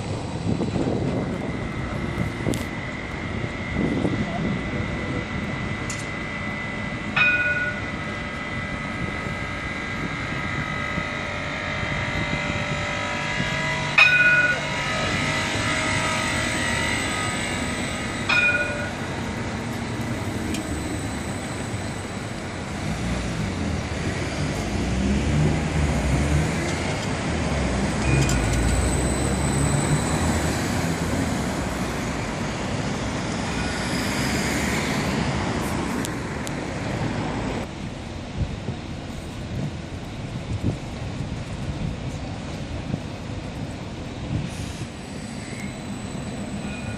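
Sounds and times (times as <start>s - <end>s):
tram rumbling along rails: 0.0s - 46.9s
tram warning bell ding: 1.4s - 23.0s, 27.8s - 32.5s, 45.0s - 46.9s.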